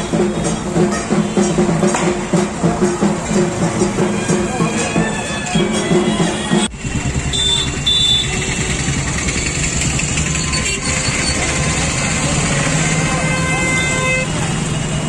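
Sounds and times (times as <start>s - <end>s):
music: 0.0s - 7.7s
busy street din: 0.0s - 15.0s
motor traffic: 0.0s - 15.0s.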